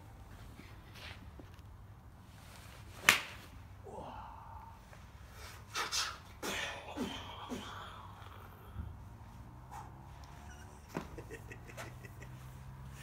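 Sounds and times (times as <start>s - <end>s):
wordless vocal noises: 3.8s - 13.0s.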